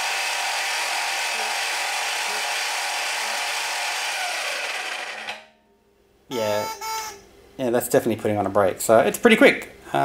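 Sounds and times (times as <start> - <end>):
lathe motor whining: 0.0 - 5.5.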